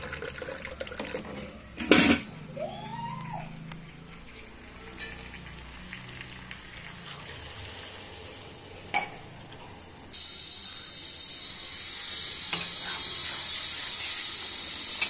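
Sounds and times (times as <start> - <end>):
fish sizzling in a pan: 3.9 - 9.4, 10.1 - 15.0.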